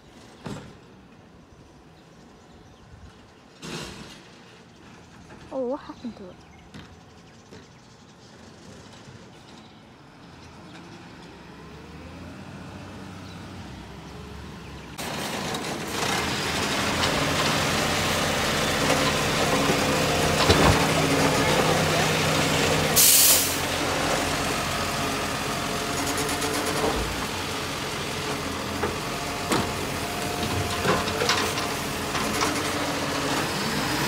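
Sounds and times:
garbage truck engine running: 15.0 - 34.0
air brakes hissing: 23.0 - 23.7.

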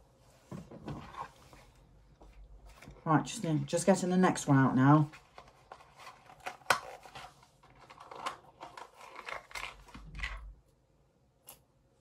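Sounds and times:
packaging crinkling: 5.2 - 10.4.

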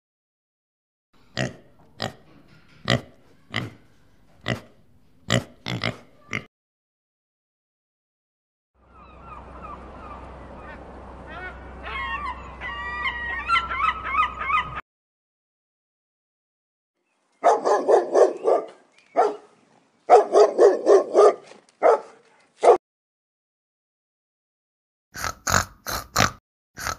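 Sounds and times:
low steady rumble: 8.8 - 13.5
geese honking: 9.0 - 14.8
dog barking: 17.4 - 22.8.

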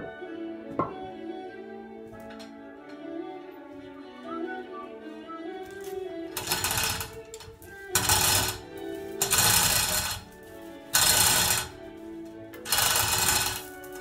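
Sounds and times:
background music: 0.0 - 14.0
chain rattling through hoist block: 6.4 - 8.6, 9.2 - 10.2, 11.0 - 11.7, 12.7 - 13.7.

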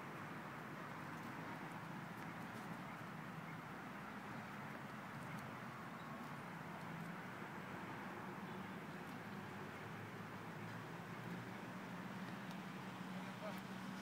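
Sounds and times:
outdoor background hiss: 0.0 - 14.0
faint ticks: 12.2 - 12.7.

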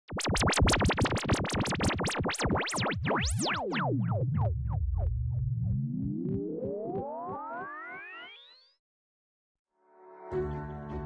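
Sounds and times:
electronic sweeping zaps: 0.1 - 4.2
low electronic hum: 0.1 - 8.1
rising synth sweep: 0.1 - 8.8.

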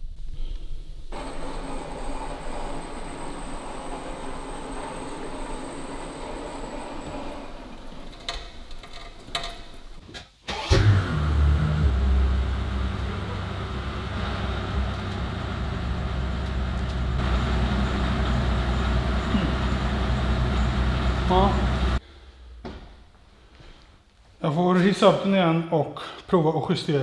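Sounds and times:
car engine starting and idling: 1.1 - 22.6.

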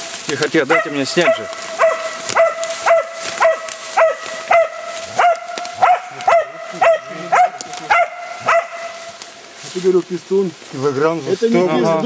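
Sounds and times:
dog barking: 0.6 - 9.0.

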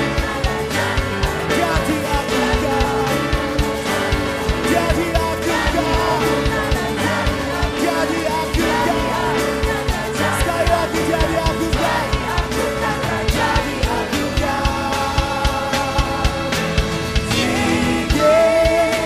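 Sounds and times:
upbeat band music with singing: 0.0 - 19.0.

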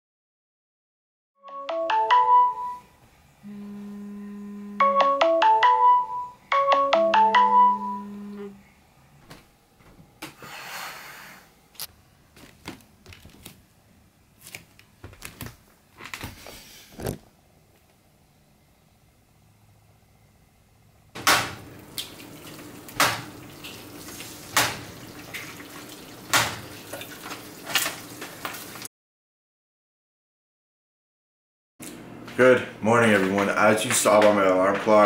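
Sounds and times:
alarm clock melody: 1.5 - 2.9, 4.8 - 8.3.

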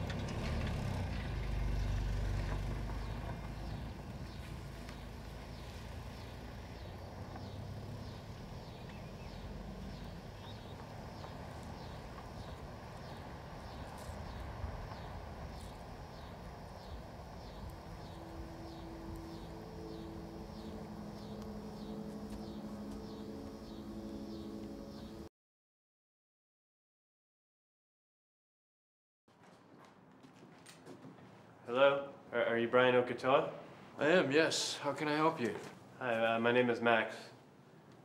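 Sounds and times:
steady low rumble: 2.9 - 25.3
low sustained tones: 14.4 - 25.3.

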